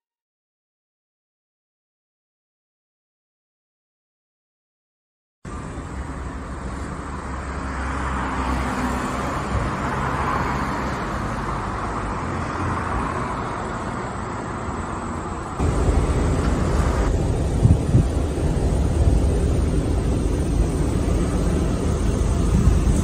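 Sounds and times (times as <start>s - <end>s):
vehicle passing: 5.5s - 23.0s
heavy rumble: 15.3s - 23.0s.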